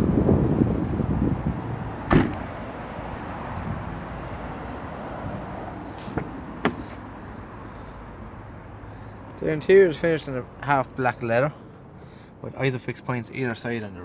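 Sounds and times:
wind noise rumble: 0.0s - 6.5s
car door handle and latch clicks: 2.1s - 2.5s
car tailgate slamming shut: 2.1s - 2.5s.

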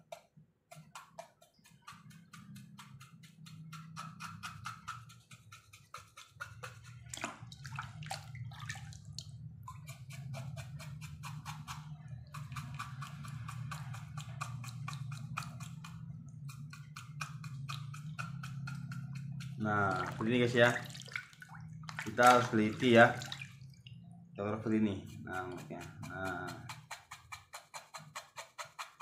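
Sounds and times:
rhythmic scrubbing strokes: 17.6s - 20.9s, 24.4s - 29.0s.

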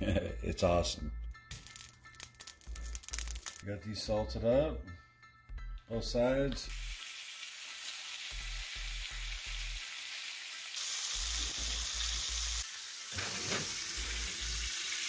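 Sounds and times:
steaks sizzling in a skillet: 6.7s - 15.0s.

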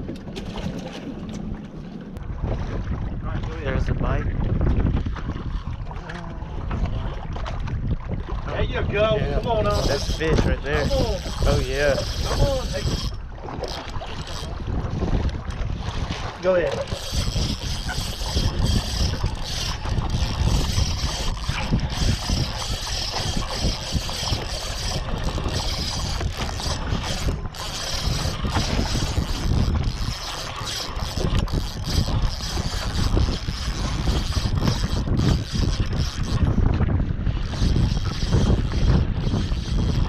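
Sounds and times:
wind buffeting microphone: 0.0s - 40.0s
fishing reel cranking: 9.2s - 16.0s, 16.7s - 36.8s, 37.4s - 40.0s.

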